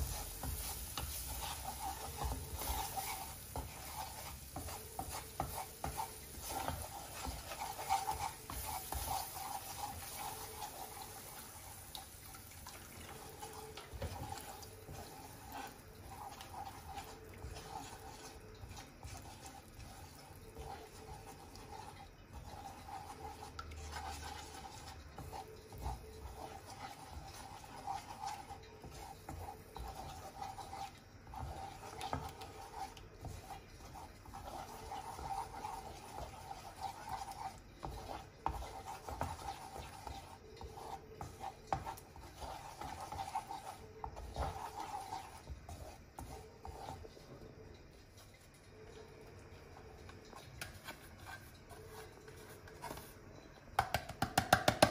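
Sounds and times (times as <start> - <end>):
spatula scraping in frying pan: 0.0 - 54.9
spatula knocking against pan: 53.8 - 54.9.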